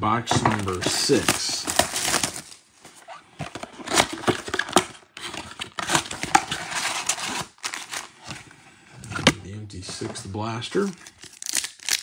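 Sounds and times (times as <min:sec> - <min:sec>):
foil packs crinkling: 0:00.4 - 0:02.6, 0:10.8 - 0:12.0.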